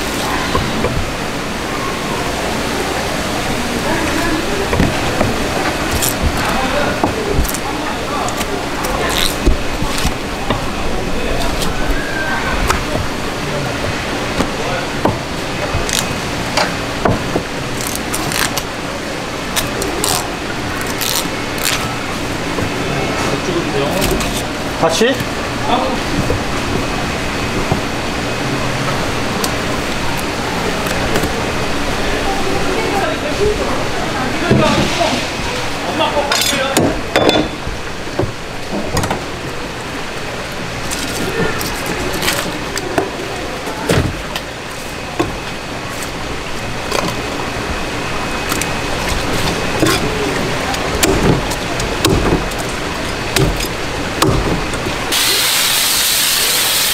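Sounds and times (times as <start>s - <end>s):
steady background noise: 0.0s - 56.9s.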